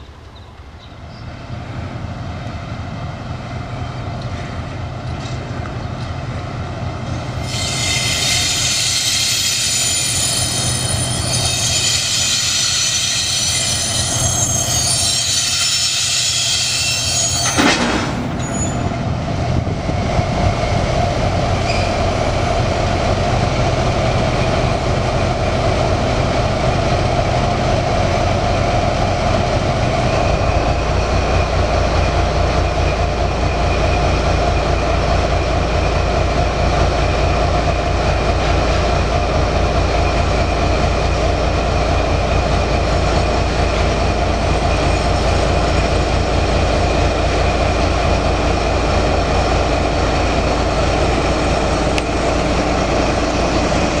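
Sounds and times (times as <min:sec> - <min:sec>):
locomotive engine humming: 0:00.0 - 0:09.0, 0:09.6 - 0:54.0
high wheel squeal: 0:07.4 - 0:19.1, 0:21.6 - 0:22.1
sharp metallic clank: 0:17.0 - 0:18.9.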